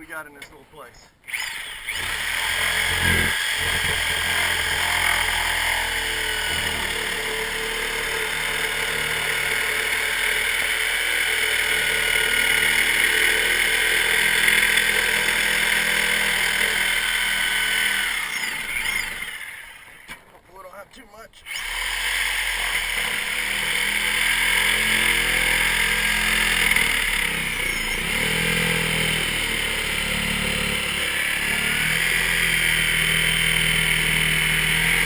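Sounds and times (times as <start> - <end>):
reciprocating saw cutting wood: 1.3 - 20.2, 21.4 - 35.0.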